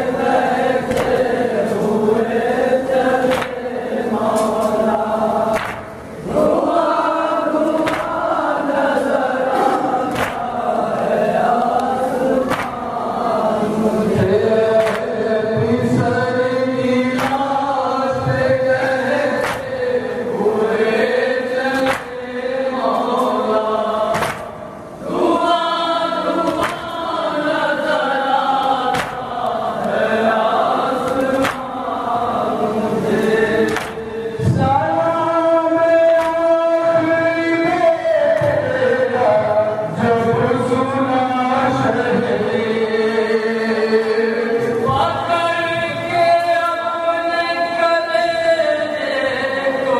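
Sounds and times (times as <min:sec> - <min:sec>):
men chanting a lament: 0:00.0 - 0:49.9
hands slapping chests: 0:00.9 - 0:01.2, 0:03.3 - 0:03.6, 0:05.5 - 0:05.9, 0:07.8 - 0:08.3, 0:10.1 - 0:10.5, 0:12.5 - 0:12.8, 0:14.8 - 0:15.1, 0:17.2 - 0:17.5, 0:18.8 - 0:19.8, 0:21.8 - 0:22.2, 0:24.1 - 0:24.6, 0:26.4 - 0:26.9, 0:28.9 - 0:29.6, 0:31.0 - 0:31.7, 0:33.7 - 0:34.0, 0:36.2 - 0:36.4.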